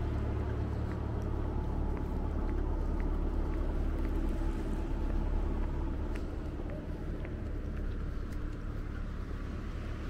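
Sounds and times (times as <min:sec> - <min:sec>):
faint light ticks: 0:00.4 - 0:04.2.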